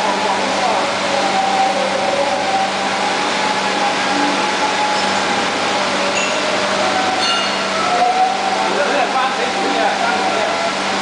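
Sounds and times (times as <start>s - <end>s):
wavering high whine: 0.0s - 11.0s.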